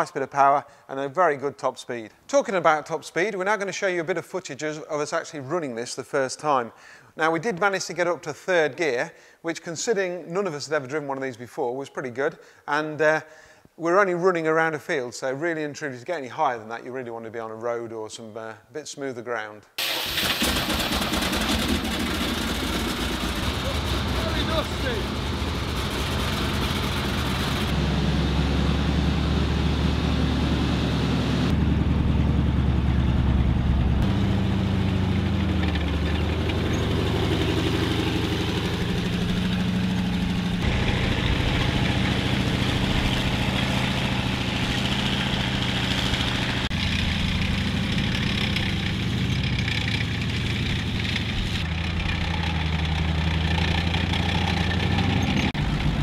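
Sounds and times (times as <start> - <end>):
tank engine running: 20.0 - 56.0.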